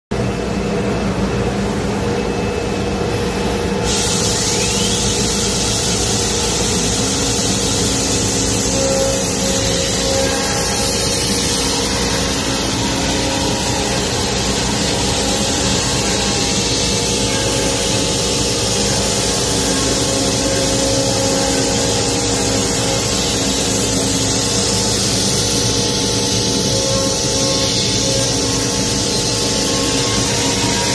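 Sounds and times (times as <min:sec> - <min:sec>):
wood router machine routing: 0:06.7 - 0:30.9.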